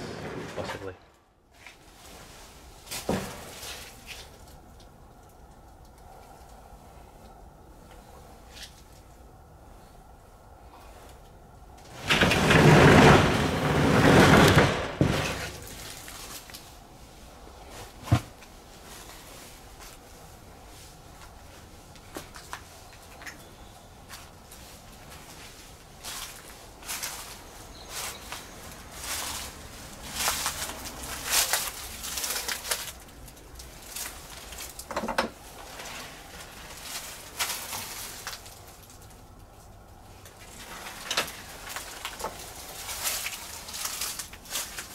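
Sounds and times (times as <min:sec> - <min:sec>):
wooden sliding door rumbling: 0:00.0 - 0:01.0, 0:11.8 - 0:15.9
footsteps through dry leaves: 0:15.5 - 0:16.8, 0:23.6 - 0:34.8, 0:35.6 - 0:39.2, 0:40.5 - 0:44.9.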